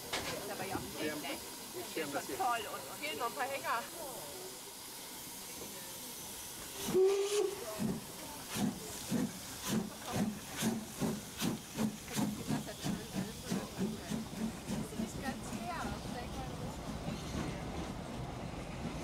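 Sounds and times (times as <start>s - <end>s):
steam locomotive hissing: 0.0s - 19.0s
locomotive chuffing: 0.4s - 19.0s
steam whistle: 6.8s - 7.8s.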